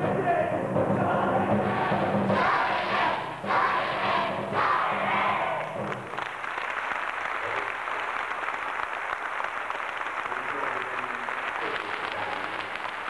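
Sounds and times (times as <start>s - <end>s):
group chanting: 0.1s - 5.8s
audience clapping: 4.0s - 13.0s.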